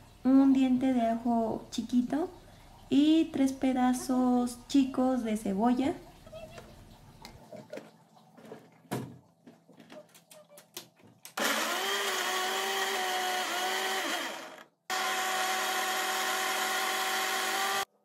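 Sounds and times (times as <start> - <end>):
blender motor running: 11.3 - 17.9.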